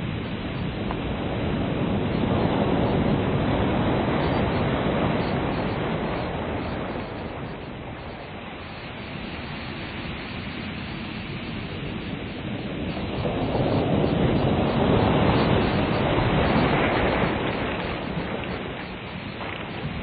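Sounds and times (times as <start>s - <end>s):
ocean waves washing in: 0.0s - 20.0s.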